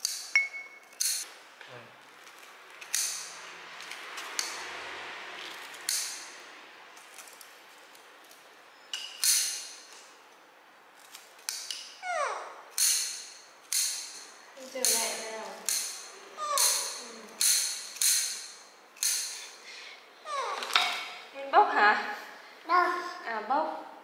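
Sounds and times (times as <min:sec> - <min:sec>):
scissors snipping: 0:11.0 - 0:11.9, 0:12.7 - 0:16.0.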